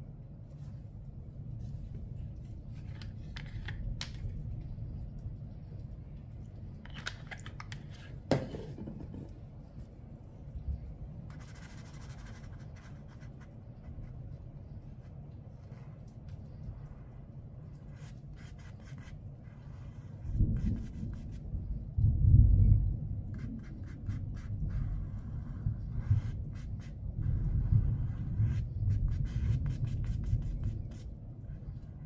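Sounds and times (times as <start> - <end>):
faint steady hum: 0.0 - 32.0
paintbrush scratching on paper: 11.3 - 16.0, 17.8 - 21.4, 23.3 - 32.0.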